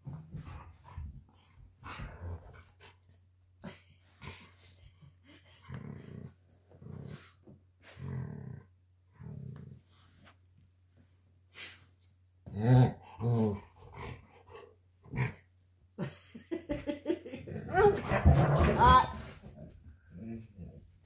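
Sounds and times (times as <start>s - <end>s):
dogs growling: 0.0s - 9.9s, 12.5s - 15.5s, 17.2s - 21.0s.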